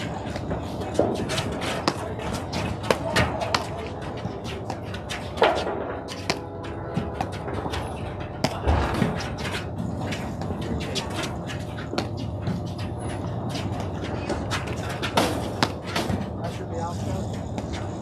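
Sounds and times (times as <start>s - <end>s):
paddles striking ball: 0.0s - 6.4s
players' footsteps scuffing court: 0.0s - 18.0s.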